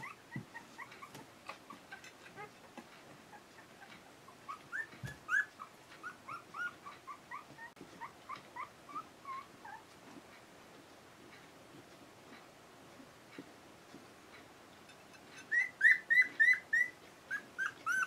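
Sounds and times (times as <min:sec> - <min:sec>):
puppies whimpering: 0:00.0 - 0:09.9, 0:15.4 - 0:18.0.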